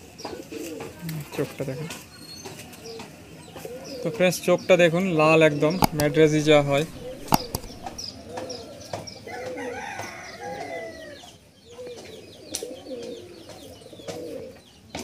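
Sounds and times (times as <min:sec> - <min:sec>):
pigeons cooing: 0:00.2 - 0:01.0, 0:03.6 - 0:04.2, 0:05.5 - 0:09.8, 0:10.4 - 0:14.7
rooster crowing: 0:09.3 - 0:11.1.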